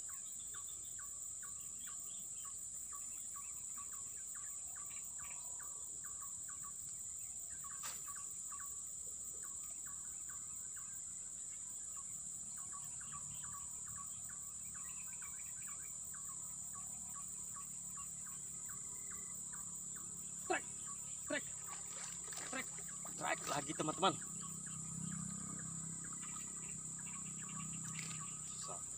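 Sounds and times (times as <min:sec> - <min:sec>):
high-pitched insect drone: 0:09.8 - 0:28.9
short chirping calls: 0:12.7 - 0:28.9.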